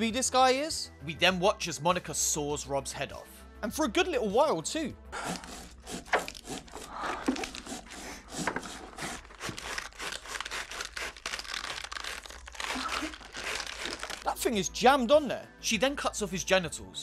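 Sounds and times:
gory saw crunching flesh: 0:05.2 - 0:14.4.

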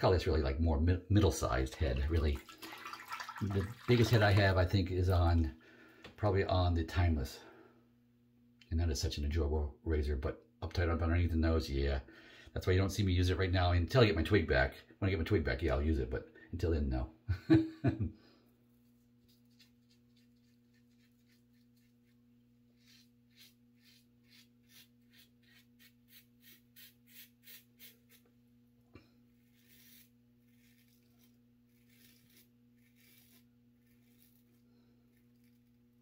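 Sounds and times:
razor scraping stubble: 0:18.9 - 0:28.4, 0:29.2 - 0:36.0.

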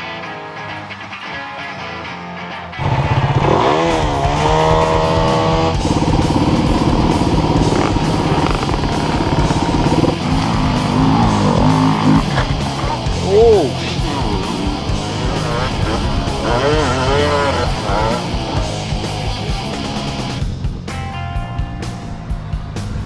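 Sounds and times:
guitar music: 0:00.0 - 0:23.0
motorcycle engine revving: 0:02.8 - 0:21.0.

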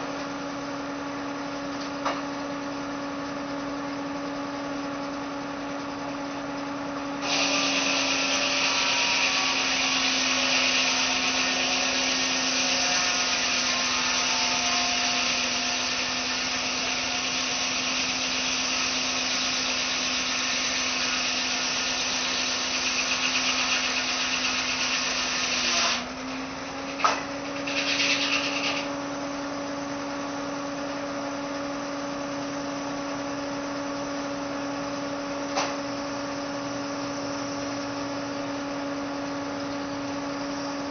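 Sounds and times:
sawmill running hum: 0:00.0 - 0:40.9
saw blade cutting wood: 0:07.2 - 0:26.1, 0:26.9 - 0:28.9
brief rasp: 0:27.0 - 0:28.9.

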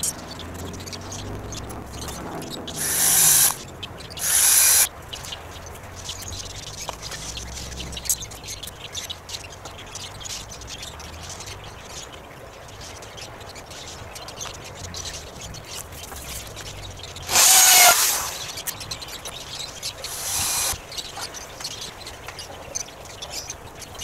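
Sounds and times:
small birds chirping: 0:00.0 - 0:24.0
drill driving into wood: 0:02.8 - 0:03.6, 0:04.2 - 0:04.9, 0:17.3 - 0:18.6, 0:20.0 - 0:20.8.

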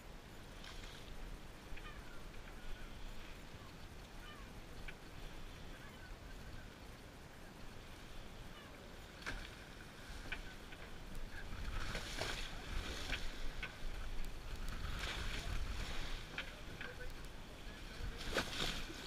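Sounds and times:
wind rumble on microphone: 0:00.0 - 0:19.0
water lapping against boat hull: 0:08.9 - 0:19.0.

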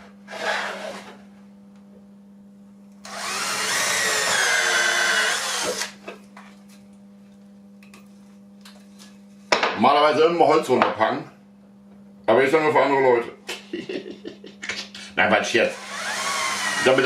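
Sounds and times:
cordless drill boring wood: 0:03.0 - 0:06.0, 0:15.7 - 0:17.0.

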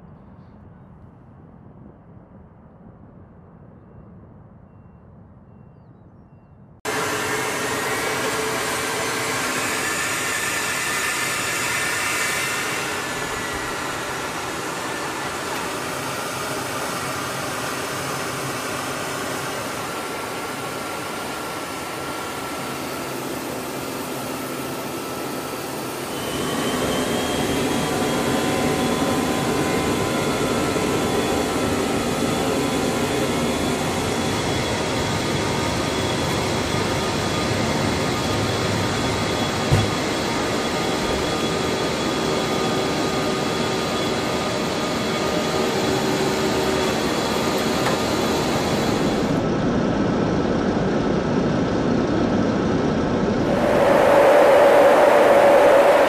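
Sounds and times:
jet engines rushing: 0:06.9 - 0:49.5, 0:53.2 - 0:56.0
thin high whine: 0:53.3 - 0:56.0.

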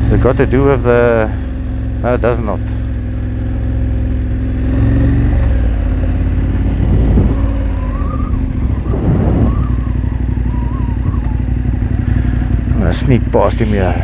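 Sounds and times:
motorcycle engine at low speed: 0:00.0 - 0:14.0.

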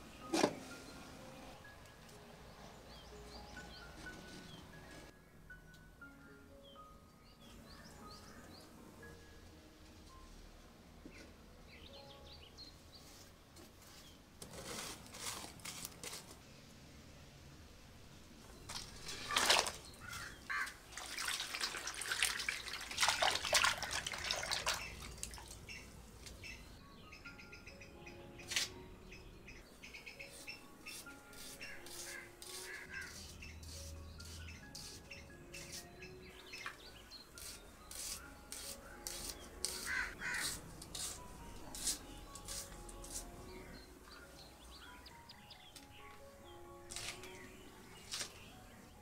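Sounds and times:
vegetables splashing into water: 0:18.7 - 0:19.9, 0:20.9 - 0:25.4
crow cawing: 0:20.0 - 0:20.8, 0:39.8 - 0:40.5
knife slicing onion: 0:37.4 - 0:43.3.

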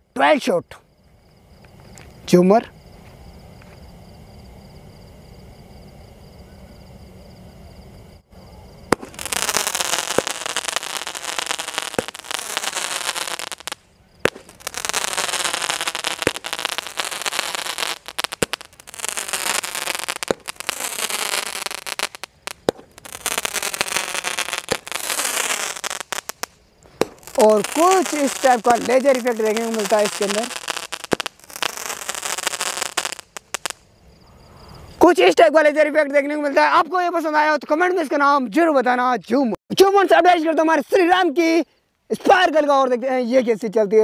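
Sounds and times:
firework hissing crackling spray: 0:08.8 - 0:33.9
firework pops: 0:08.9 - 0:33.8.

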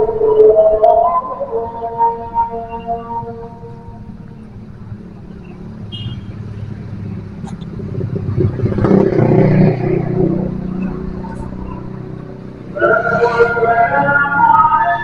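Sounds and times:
traffic noise: 0:00.0 - 0:15.0
vehicle engine passing close by: 0:00.0 - 0:15.0.

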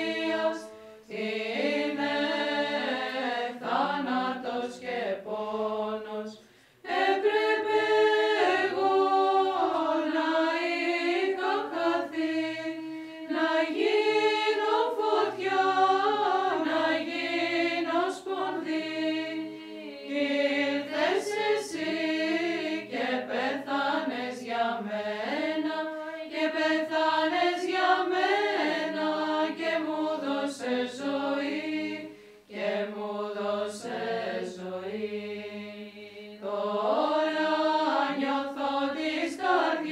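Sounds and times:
women's choir chanting: 0:00.0 - 0:39.9
singers breathing: 0:00.6 - 0:01.1, 0:06.4 - 0:06.9, 0:32.0 - 0:32.5.

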